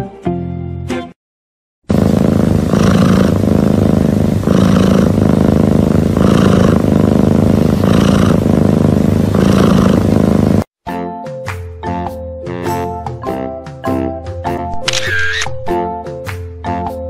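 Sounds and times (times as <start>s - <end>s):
cat airy breathing: 1.9s - 10.7s
cat purring rumble: 1.9s - 10.7s.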